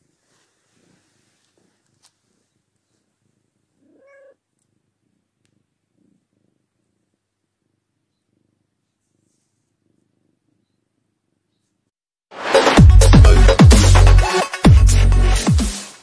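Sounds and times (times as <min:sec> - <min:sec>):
cat purring: 0:00.0 - 0:10.9
cat meowing: 0:03.8 - 0:04.4.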